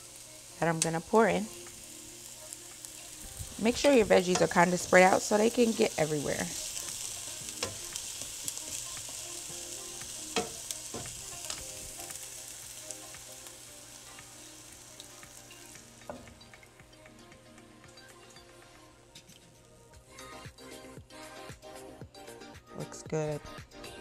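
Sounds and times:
food sizzling in a frying pan: 0:00.0 - 0:17.0.

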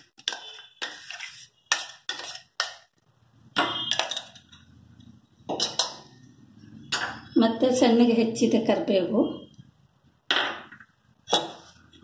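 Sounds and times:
metal spoon scraping a jar: 0:00.3 - 0:02.5.

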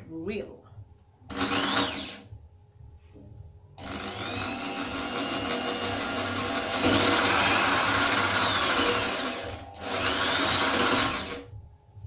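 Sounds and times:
electric drill boring into wood: 0:01.3 - 0:02.2, 0:03.8 - 0:11.5.

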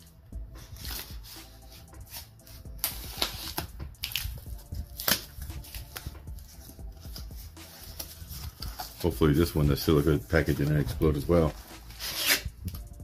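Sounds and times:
cardboard and tape snapping: 0:02.8 - 0:04.4, 0:05.0 - 0:06.1
utility knife slitting tape: 0:11.8 - 0:12.8.

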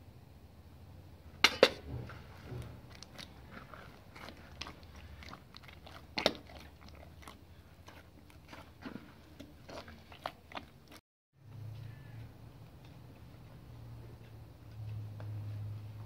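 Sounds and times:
hands kneading bread dough: 0:01.8 - 0:11.0.

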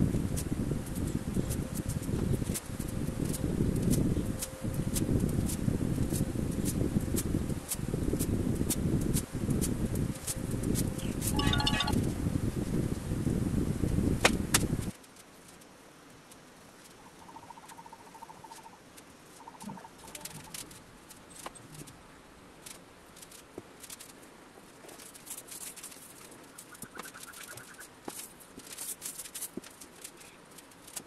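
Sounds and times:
wooden staves clicking and knocking: 0:20.0 - 0:22.0, 0:22.6 - 0:31.0.

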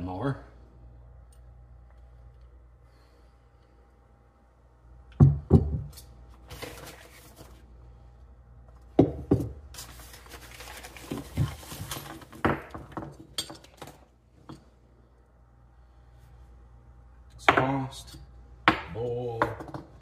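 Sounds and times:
plastic bag crinkling: 0:09.8 - 0:12.4.

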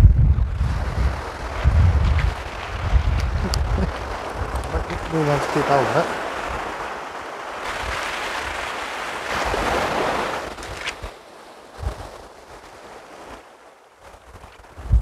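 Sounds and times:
wind buffeting microphone: 0:00.0 - 0:15.0
sea surf breaking: 0:00.2 - 0:15.0.

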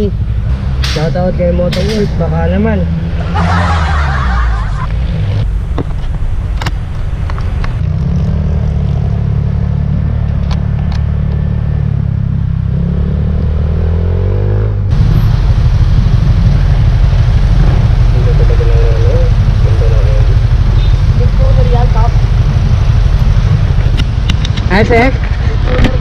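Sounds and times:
scooter engine: 0:14.9 - 0:26.0.

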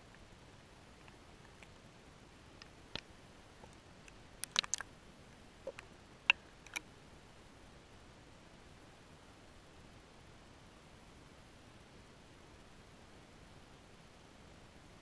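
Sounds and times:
underwater clicks and ticks: 0:02.6 - 0:04.9, 0:05.6 - 0:06.9.

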